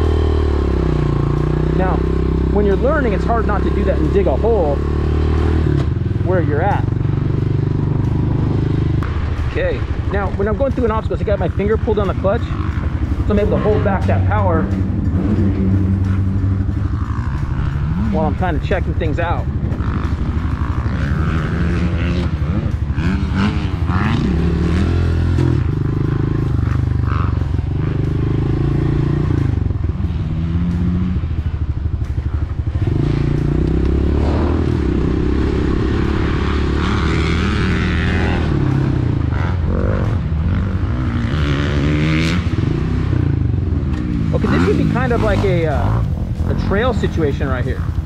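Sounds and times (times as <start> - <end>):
motorcycle engine revving: 0.0 - 48.0.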